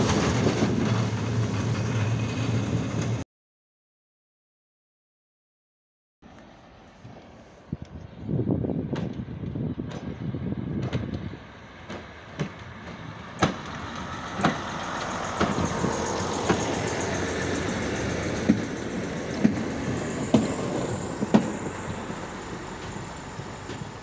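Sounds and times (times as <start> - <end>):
motor trolley engine running: 11.7 - 24.0.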